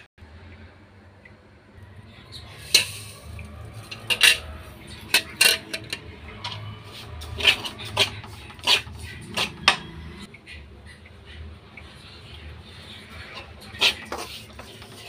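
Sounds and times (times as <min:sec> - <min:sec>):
metal spoon scraping steel bowl: 0:02.2 - 0:10.3, 0:12.2 - 0:15.0.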